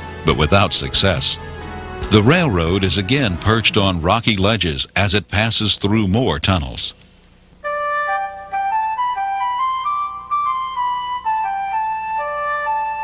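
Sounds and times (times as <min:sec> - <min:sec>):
solo flute melody: 0:07.6 - 0:13.0.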